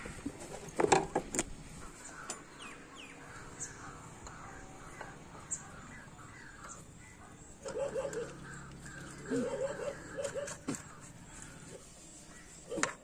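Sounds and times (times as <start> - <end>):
crows cawing: 3.3 - 12.8.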